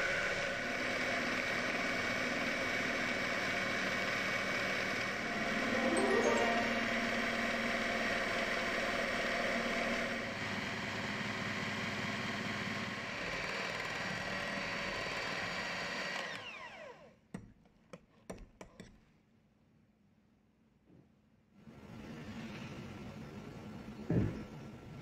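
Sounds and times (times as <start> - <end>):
electric hand mixer running: 0.2 - 5.6.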